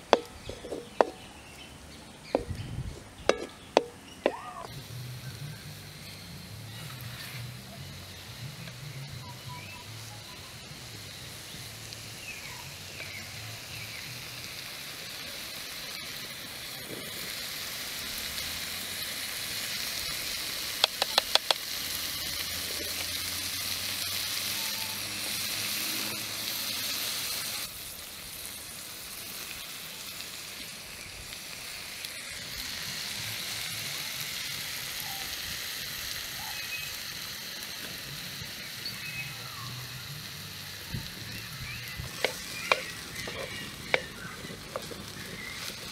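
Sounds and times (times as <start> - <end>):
food sizzling in a metal pan: 0.0 - 45.9
sharp clicks: 20.8 - 21.6.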